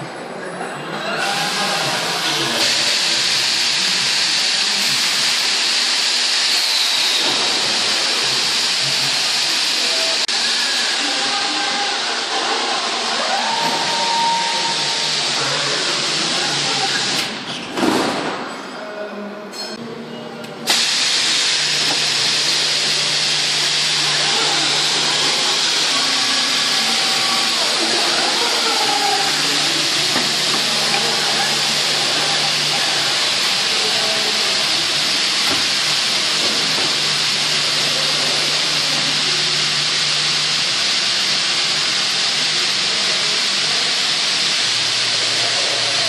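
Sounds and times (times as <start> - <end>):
vacuum gripper hissing: 20.7 - 42.0.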